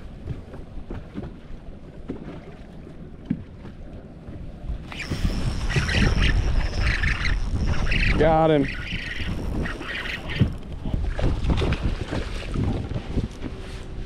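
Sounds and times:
waves lapping against hull: 0:00.0 - 0:14.0
wind over water: 0:00.0 - 0:14.0
wind noise on microphone: 0:04.6 - 0:14.0.

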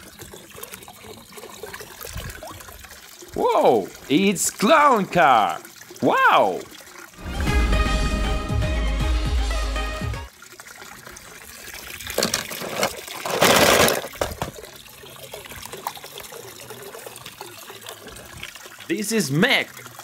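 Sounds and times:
pool water sloshing and trickling: 0:00.0 - 0:07.3, 0:10.3 - 0:20.0
loud water splash: 0:07.2 - 0:08.7
film soundtrack music: 0:07.2 - 0:10.3.

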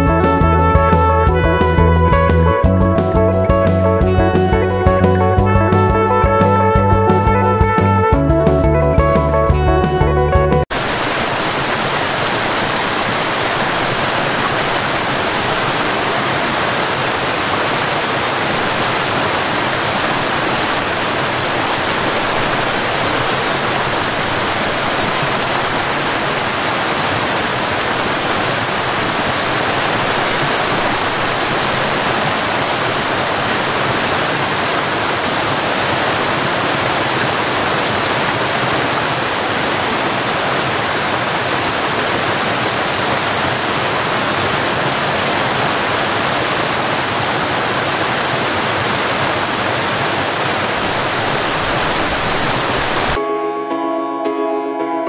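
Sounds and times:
waterfall rushing over rocks: 0:10.7 - 0:53.2.

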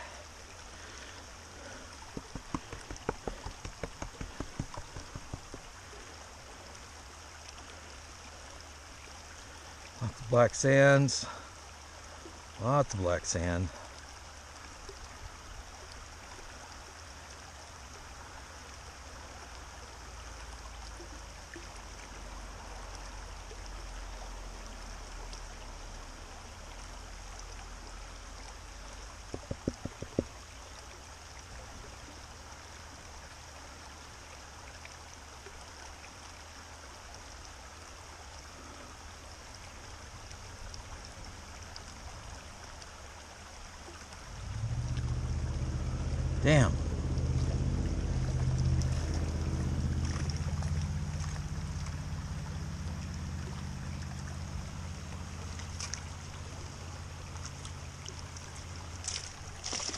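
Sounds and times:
creek running over rocks: 0:00.0 - 0:59.9
taps on plastic pan: 0:02.2 - 0:05.6, 0:29.3 - 0:30.3.

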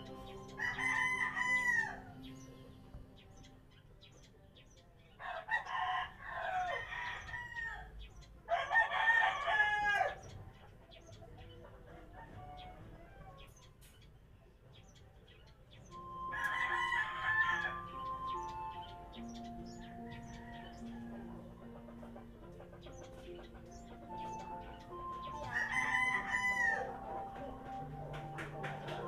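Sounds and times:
roosters crowing: 0:00.0 - 0:02.6, 0:05.2 - 0:10.4, 0:12.0 - 0:13.6, 0:16.0 - 0:29.0.

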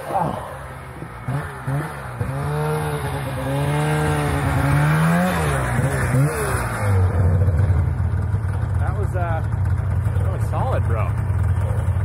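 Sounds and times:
snowmobile engine revving: 0:00.0 - 0:12.0.

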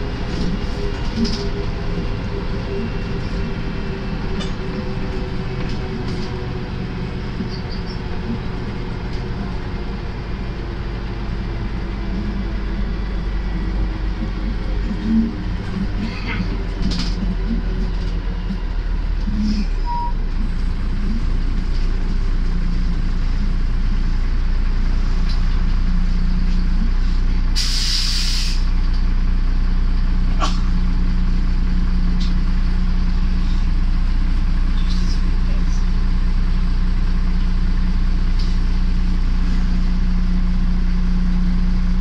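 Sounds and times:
bus engine drone: 0:00.0 - 0:42.0
air brakes hissing: 0:27.5 - 0:28.7.

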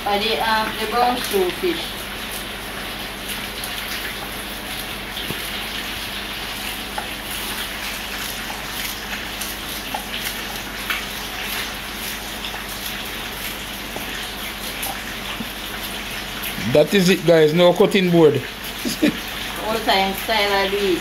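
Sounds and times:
fish sizzling in hot oil: 0:00.0 - 0:21.0.

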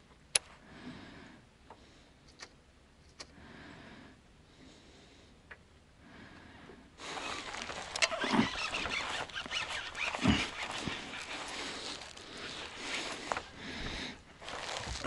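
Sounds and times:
fishing reel cranking: 0:07.0 - 0:13.3
fishing rod handling rustle: 0:07.0 - 0:15.0.

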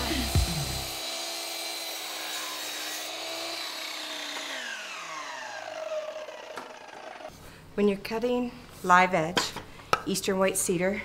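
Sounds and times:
miter saw cutting wood: 0:00.0 - 0:07.3
saw blade winding down whine: 0:00.0 - 0:07.3.

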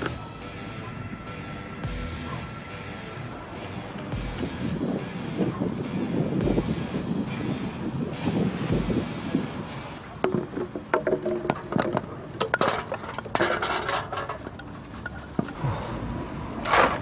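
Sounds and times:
plastic bag rustling: 0:09.8 - 0:15.6
cans and bottles clinking: 0:10.2 - 0:15.6.

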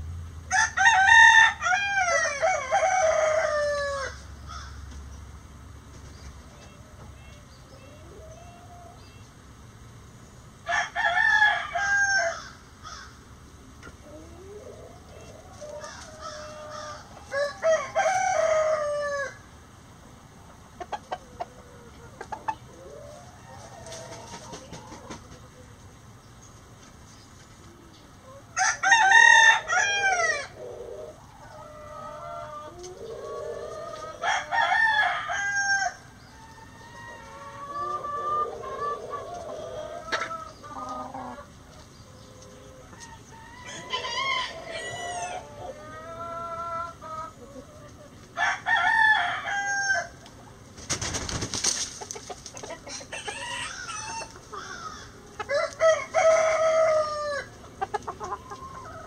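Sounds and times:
roosters crowing: 0:00.5 - 0:04.9, 0:10.6 - 0:13.3, 0:14.0 - 0:19.7, 0:21.0 - 0:25.7, 0:28.3 - 0:50.4, 0:51.0 - 0:59.0
hens clucking: 0:05.9 - 0:09.5, 0:13.0 - 0:19.4, 0:20.4 - 0:35.4, 0:36.3 - 0:48.4, 0:50.1 - 0:59.0.

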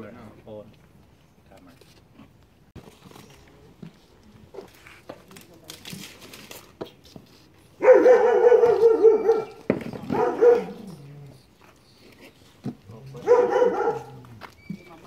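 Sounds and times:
dog whining: 0:07.8 - 0:09.6.

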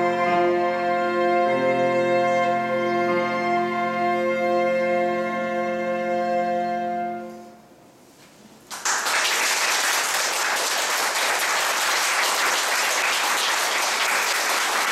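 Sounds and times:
audience applause: 0:08.7 - 0:14.9.

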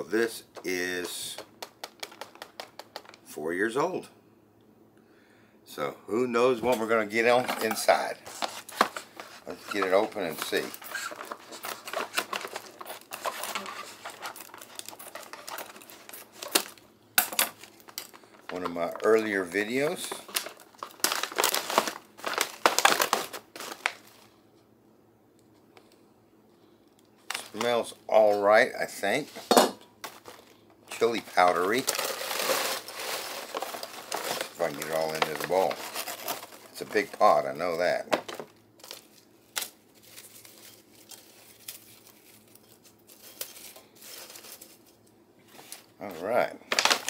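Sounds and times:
foil bag crinkling: 0:00.8 - 0:03.2, 0:07.0 - 0:16.8, 0:17.5 - 0:24.4, 0:27.2 - 0:29.4, 0:30.0 - 0:47.0
dry food chunks crackling: 0:17.6 - 0:24.2, 0:30.1 - 0:37.4.

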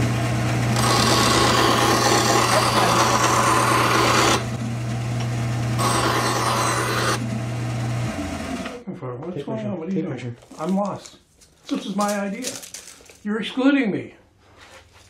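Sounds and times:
bandsaw motor hum: 0:00.0 - 0:08.8
saw blade cutting wood: 0:00.7 - 0:04.6, 0:05.8 - 0:07.3.

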